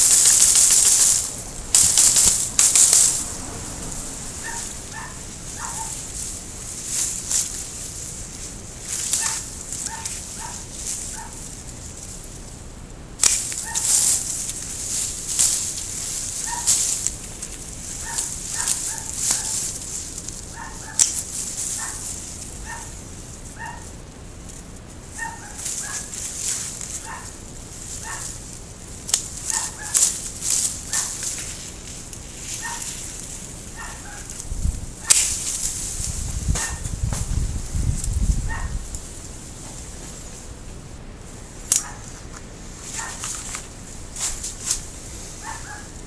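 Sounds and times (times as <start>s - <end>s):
pruning shears snipping branches: 0.0s - 3.4s, 4.4s - 11.8s, 13.2s - 23.0s, 25.2s - 37.4s, 41.6s - 45.8s
leafy branches rustling: 0.0s - 46.0s
short high calls: 4.2s - 6.2s, 15.6s - 17.1s.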